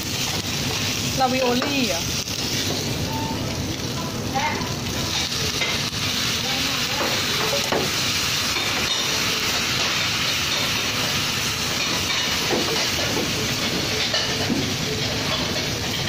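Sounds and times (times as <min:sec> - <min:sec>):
cabbage sizzling in frying pan: 0:00.0 - 0:16.0
utensil knocking on pan: 0:06.9 - 0:07.9.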